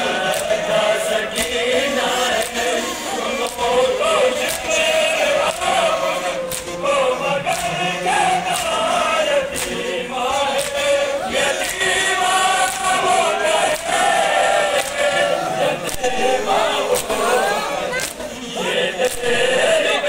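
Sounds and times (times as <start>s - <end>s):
crowd of men chanting: 0.0s - 20.0s
hands slapping bare chests: 0.2s - 0.7s, 1.3s - 2.7s, 4.4s - 6.9s, 7.5s - 7.8s, 8.5s - 9.9s, 10.5s - 18.3s, 19.0s - 19.4s.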